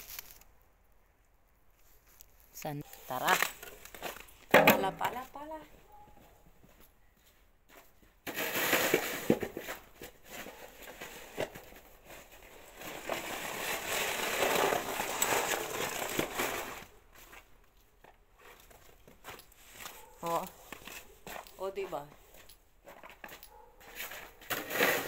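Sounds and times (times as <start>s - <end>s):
snow shovel scraping snow on paving: 8.2s - 17.4s, 23.8s - 25.0s.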